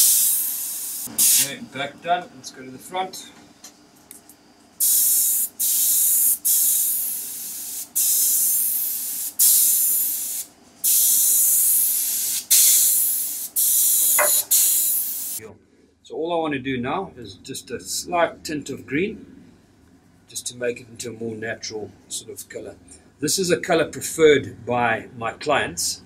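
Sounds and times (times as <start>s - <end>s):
airbrush spraying: 0.0s - 1.6s, 4.8s - 15.4s.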